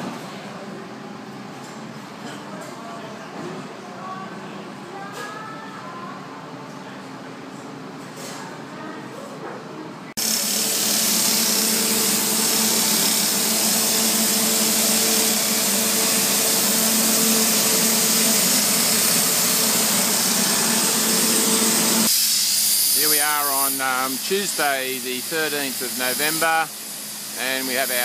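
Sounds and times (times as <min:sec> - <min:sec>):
compressor engine humming: 0:10.2 - 0:22.2
sandblaster hissing: 0:10.2 - 0:28.0.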